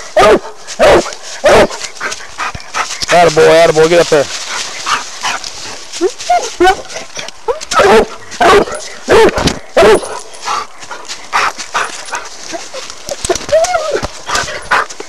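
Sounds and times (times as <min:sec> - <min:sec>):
hound barking: 0:00.1 - 0:02.5, 0:06.3 - 0:10.7.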